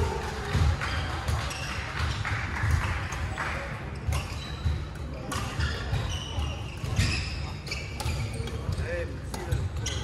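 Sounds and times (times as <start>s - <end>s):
rackets hitting shuttlecock: 4.0s - 10.0s
shoes squeaking: 5.5s - 10.0s.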